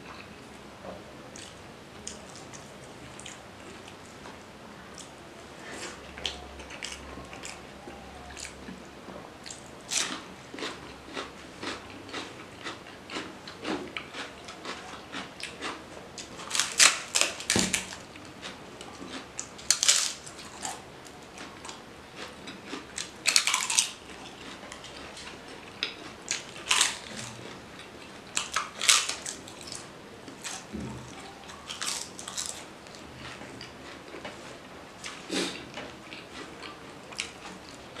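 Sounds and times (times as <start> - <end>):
crunching bites of crisp papad: 9.5 - 18.0, 19.1 - 20.8, 21.6 - 27.5, 31.6 - 34.3.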